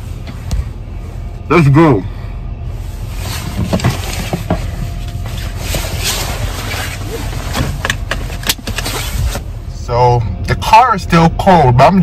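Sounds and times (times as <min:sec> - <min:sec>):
car engine rumble: 0:00.0 - 0:12.0.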